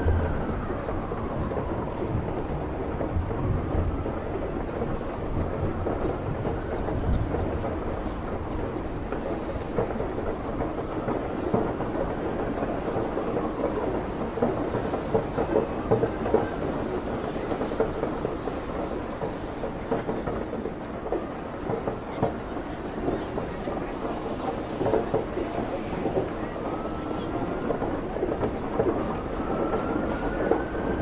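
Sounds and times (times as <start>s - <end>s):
siren wailing: 0.0s - 8.6s, 10.2s - 19.2s, 24.0s - 31.0s
heavy rain pouring: 0.0s - 31.0s
low thunder rumbling: 0.0s - 31.0s.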